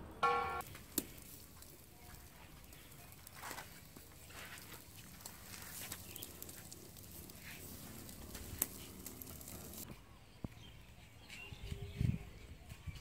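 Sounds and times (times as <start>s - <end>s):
meat sizzling on a grill: 0.6s - 9.8s.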